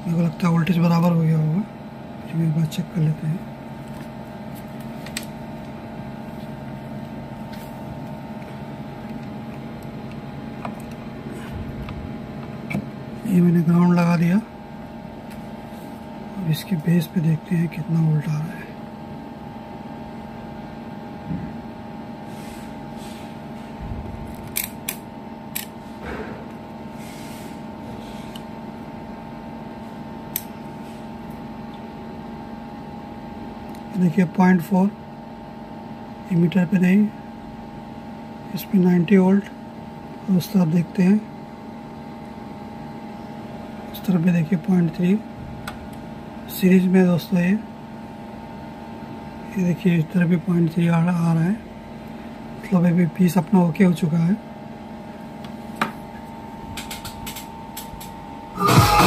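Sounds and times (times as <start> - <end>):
power amplifier hum: 0.0 - 22.0, 23.4 - 26.9, 54.8 - 59.0
multimeter probe clicks: 24.4 - 25.7.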